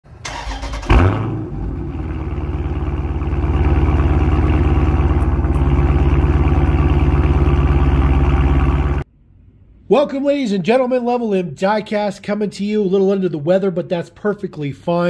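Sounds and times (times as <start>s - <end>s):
car engine starting and idling: 0.1s - 9.1s.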